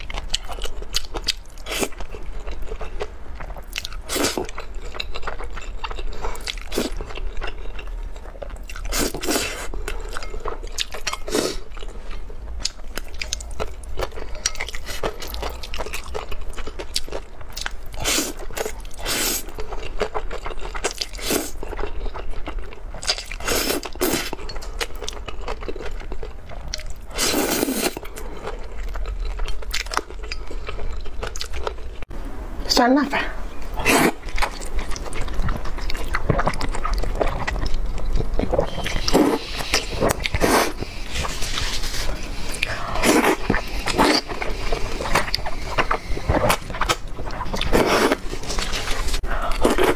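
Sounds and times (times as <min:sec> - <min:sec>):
chewing: 0:00.0 - 0:32.0, 0:33.9 - 0:49.9
slurping noodles: 0:27.1 - 0:28.0, 0:38.6 - 0:46.7, 0:47.6 - 0:49.9.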